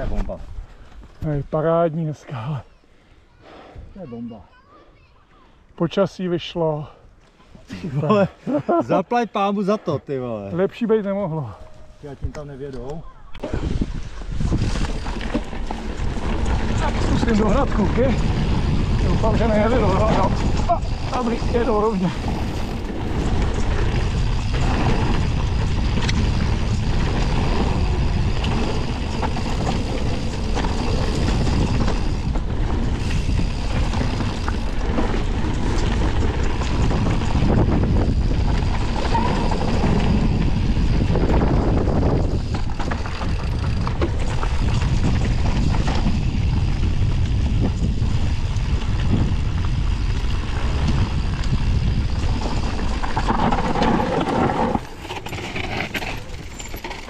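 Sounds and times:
wind buffeting microphone: 11.7s - 56.8s
bike tyres rumbling on dirt: 13.4s - 57.0s
bike rattling and knocking: 13.5s - 57.0s.

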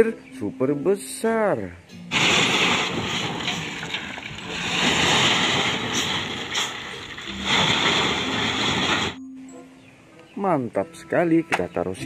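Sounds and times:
dump truck engine running: 2.1s - 9.2s
loud rushing noise: 2.1s - 9.2s
rubble unloading: 2.1s - 9.2s.

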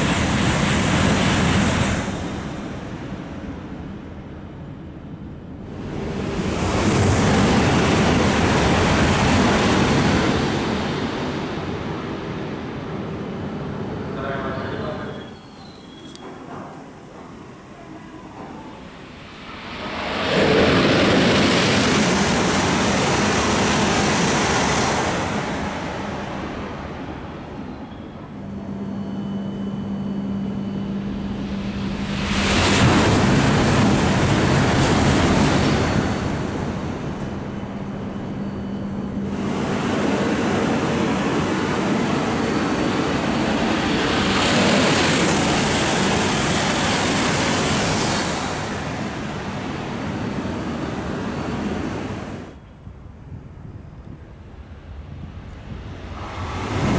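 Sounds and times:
high-speed train passing: 0.0s - 56.9s
steady low hum: 25.3s - 46.4s.

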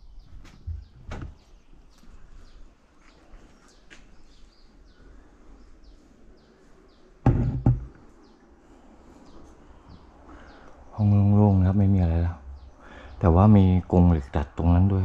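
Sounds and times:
faint bird chirping: 0.0s - 15.0s
loud knocks: 7.2s - 8.0s.

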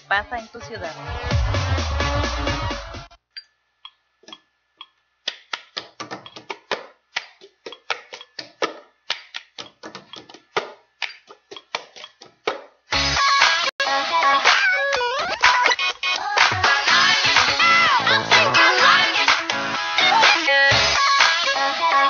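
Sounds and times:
music: 0.0s - 3.2s, 12.9s - 22.0s.

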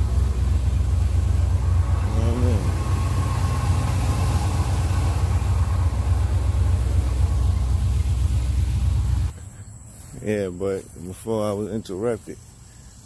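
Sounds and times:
pickup truck engine idling: 0.0s - 9.5s.

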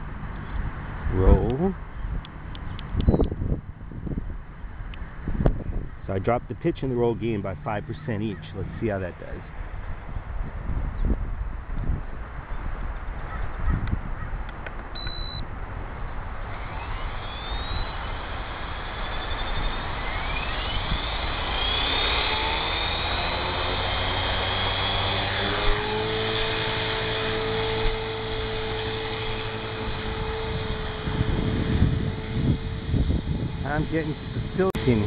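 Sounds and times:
rc helicopter motor whine: 12.6s - 35.0s
short high beep: 15.0s - 15.4s.

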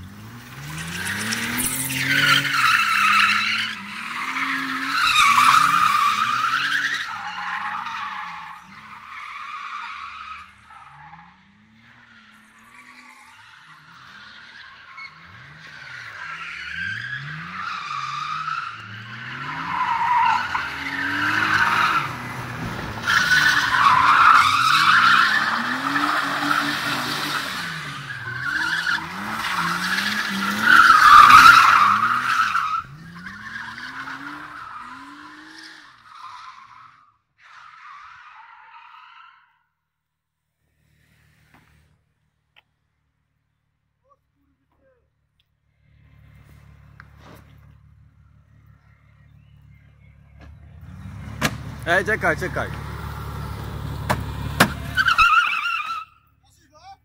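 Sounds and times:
car engines revving: 0.0s - 37.0s, 45.6s - 56.4s
tyres squealing: 23.0s - 35.4s, 54.1s - 56.7s.

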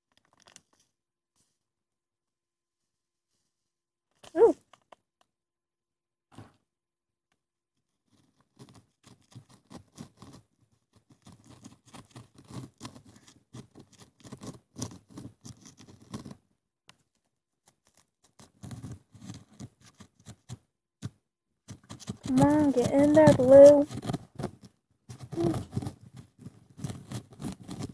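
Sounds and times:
stick scraping inside bottle: 21.8s - 24.5s, 25.2s - 26.0s.

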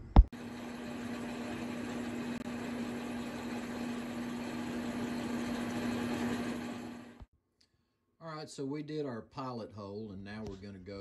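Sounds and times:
metal lathe humming: 0.4s - 7.3s.

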